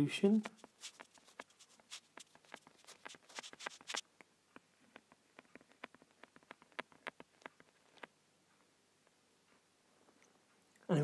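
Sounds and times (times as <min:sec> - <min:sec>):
stylus tapping on tablet screen: 0:00.4 - 0:08.2.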